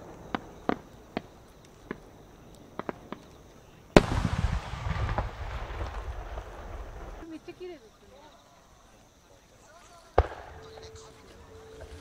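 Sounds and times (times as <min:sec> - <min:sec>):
rolling echo: 0:00.0 - 0:07.2, 0:10.1 - 0:11.8.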